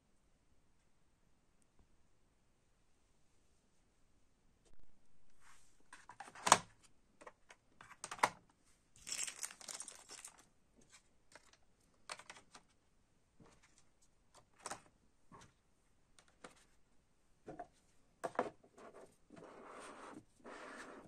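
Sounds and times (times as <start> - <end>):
plastic packaging crinkling: 9.0 - 10.5.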